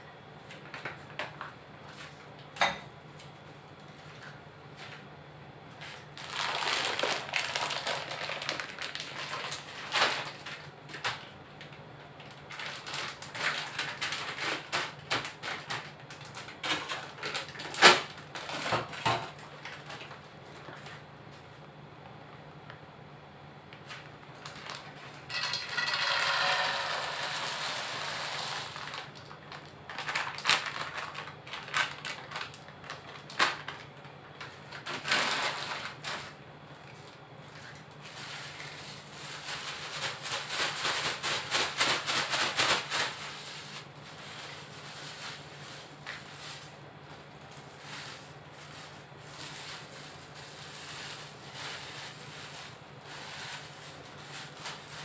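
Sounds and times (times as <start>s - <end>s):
plastic bag rustling: 6.2s - 11.3s, 12.2s - 21.0s, 23.8s - 55.0s
peanuts pouring into metal wok: 25.3s - 28.8s.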